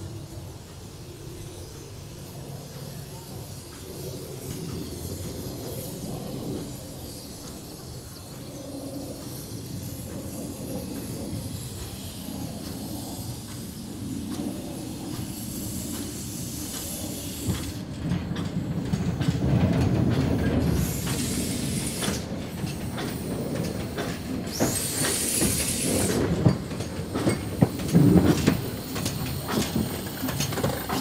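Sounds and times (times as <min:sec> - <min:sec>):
steam hiss: 0:00.0 - 0:31.0
steam locomotive rumbling on rails: 0:00.0 - 0:31.0
clanks of wheels and motion: 0:14.3 - 0:31.0.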